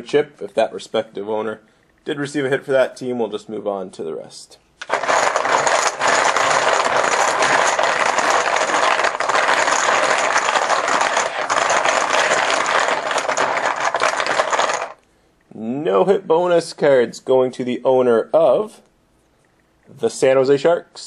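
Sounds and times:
poker chips clattering: 4.8s - 15.0s.

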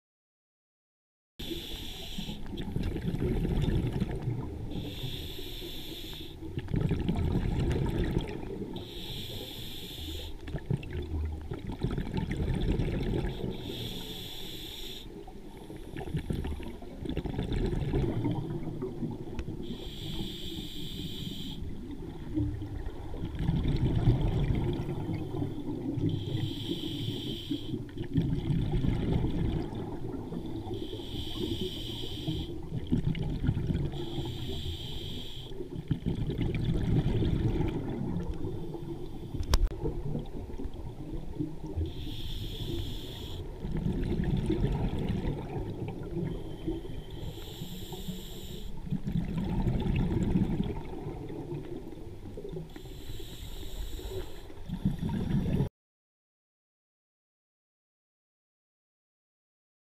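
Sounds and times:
regulator hiss on inhale: 1.4s - 2.6s, 4.7s - 6.5s, 8.7s - 10.4s, 13.3s - 16.1s, 19.6s - 21.7s, 25.3s - 27.8s, 30.4s - 32.7s, 33.9s - 35.6s, 41.8s - 43.5s, 46.4s - 48.9s, 52.7s - 54.6s
exhaled bubbles rushing: 2.5s - 4.9s, 6.5s - 8.8s, 10.5s - 13.6s, 16.0s - 19.6s, 21.8s - 26.3s, 27.8s - 30.8s, 32.6s - 34.3s, 35.7s - 41.9s, 43.5s - 46.9s, 48.8s - 52.7s, 54.6s - 55.7s.

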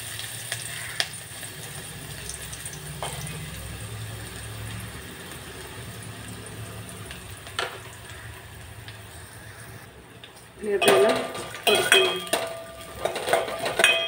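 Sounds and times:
onion sizzling in hot oil: 0.0s - 14.0s.

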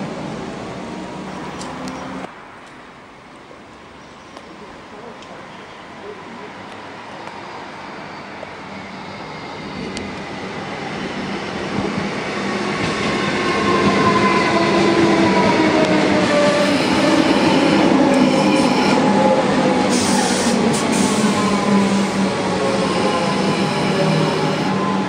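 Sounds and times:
electric train whine: 6.7s - 25.0s.

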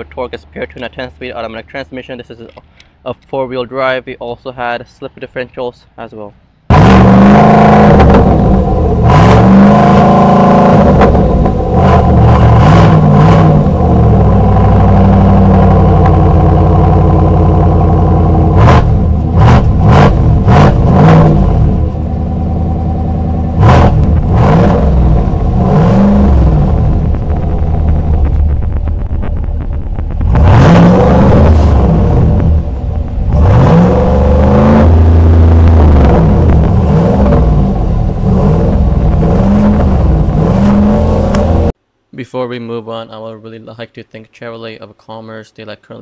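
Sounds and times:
engine revving: 6.7s - 41.8s
sharp cracks: 23.6s - 34.9s.

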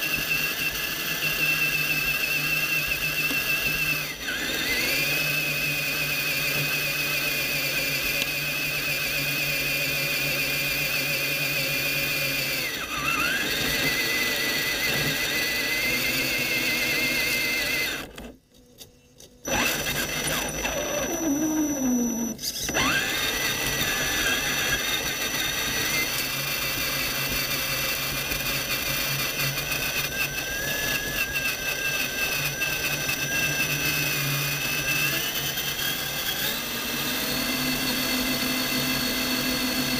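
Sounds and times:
electric motor and gears whining: 0.0s - 39.9s.

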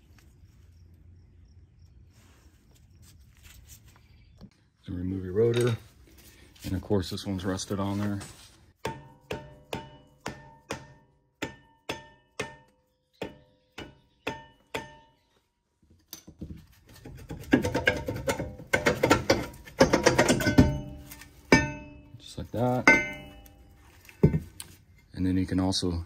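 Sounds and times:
hammer striking ringing brake rotor: 8.8s - 15.2s, 19.2s - 22.2s, 22.8s - 24.4s.

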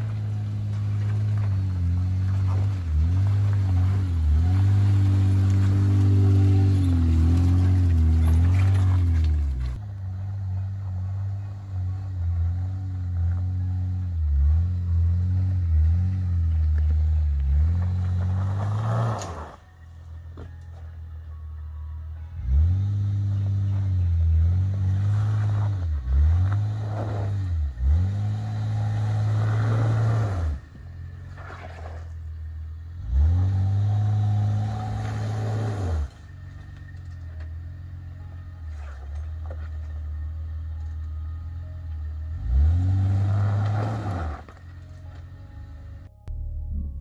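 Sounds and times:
truck engine revving hard: 0.0s - 9.8s, 10.7s - 19.6s, 22.4s - 31.8s, 33.0s - 36.2s, 42.3s - 44.6s.

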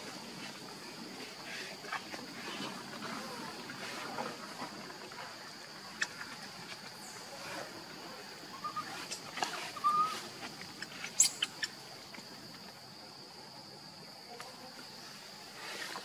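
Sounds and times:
high insect drone: 0.0s - 16.0s
infant monkey squeaks: 11.2s - 11.7s.

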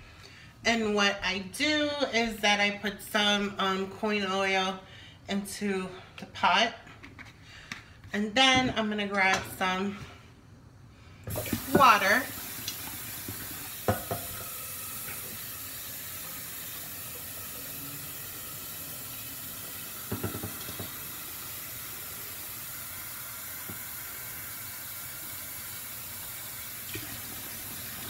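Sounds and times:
gas burner hissing: 11.2s - 28.0s.

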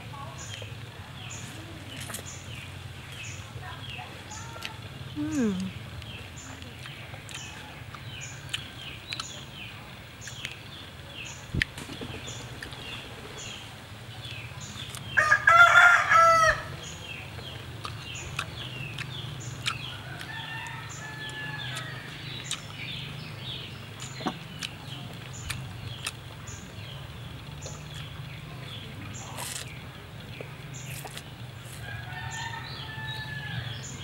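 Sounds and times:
rooster crowing: 15.2s - 16.7s, 20.1s - 22.2s, 31.8s - 33.9s
faint rhythmic chirping: 16.7s - 34.0s.

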